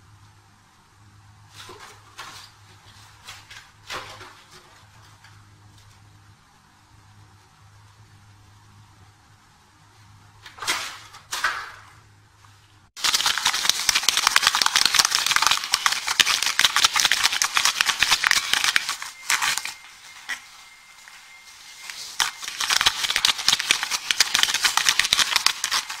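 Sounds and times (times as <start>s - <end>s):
plastic bottle crinkling: 13.0s - 20.5s, 21.8s - 26.0s.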